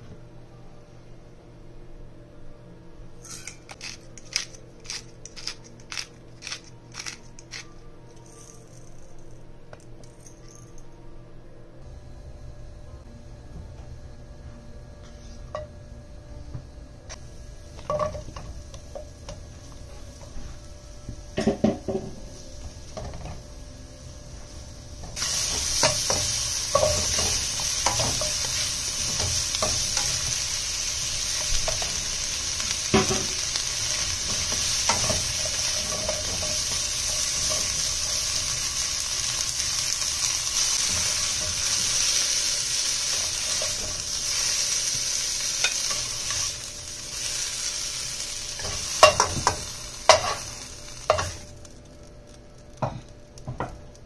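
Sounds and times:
vegetables sizzling in oil: 0:17.1 - 0:54.0.

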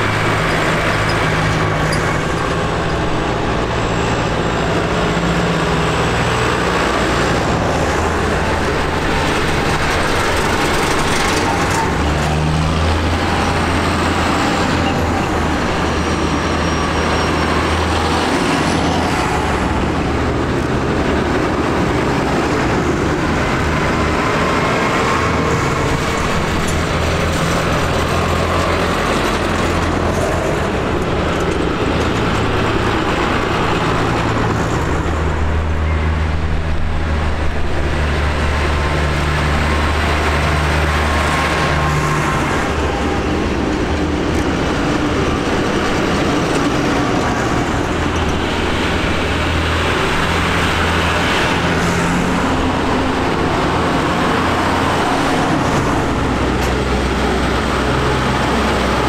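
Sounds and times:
tractor diesel engines driving past: 0:00.0 - 0:59.0.

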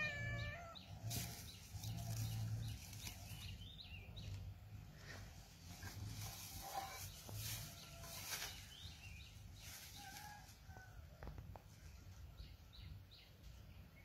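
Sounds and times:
small birds chirping: 0:00.0 - 0:10.4.

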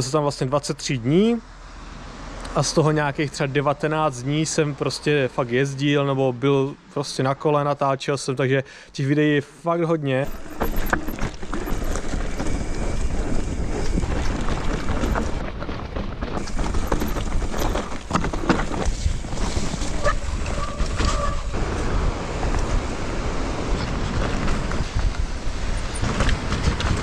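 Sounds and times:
wind buffeting microphone: 0:10.2 - 0:27.0.

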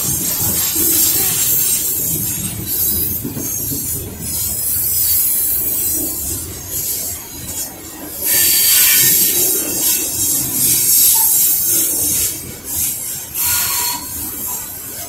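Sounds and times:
train wheels rumbling on rails: 0:00.0 - 0:15.0
high-pitched wheel squeal: 0:12.8 - 0:14.7.

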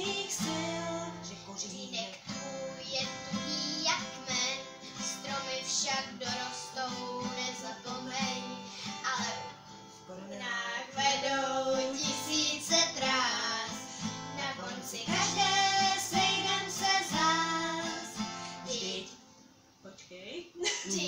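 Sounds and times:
girl singing: 0:00.0 - 0:19.2, 0:20.7 - 0:21.0
strummed acoustic guitar: 0:00.0 - 0:19.2.

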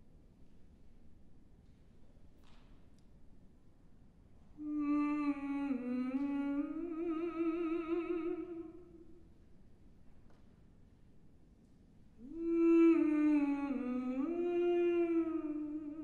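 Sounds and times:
woman humming a long note: 0:04.6 - 0:09.3, 0:12.2 - 0:16.0.

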